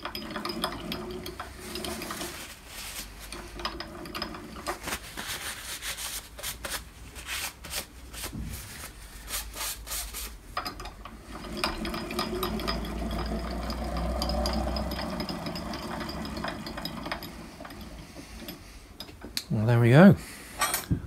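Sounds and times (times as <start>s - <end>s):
hand wheel clicking: 10.6s - 19.4s
ball screw running with ticks: 11.6s - 19.2s.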